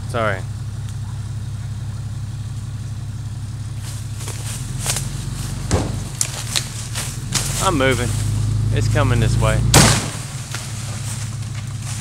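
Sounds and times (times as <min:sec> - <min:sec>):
diesel truck engine running: 0:00.0 - 0:12.0
wood cracking and snapping: 0:05.7 - 0:07.6.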